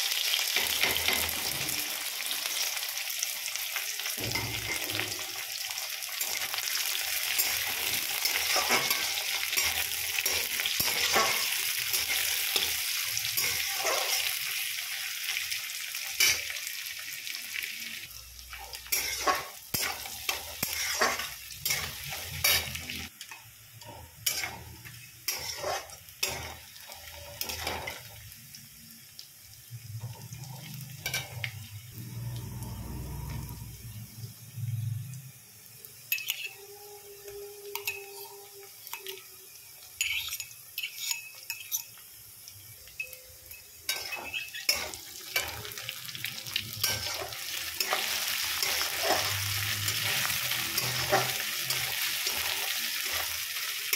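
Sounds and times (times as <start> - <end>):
onions sizzling in hot oil: 0.0 - 53.9
metal spatula scraping a pan: 6.2 - 14.6, 18.5 - 23.1, 23.8 - 28.2, 30.0 - 31.7, 40.0 - 42.0, 43.5 - 53.4.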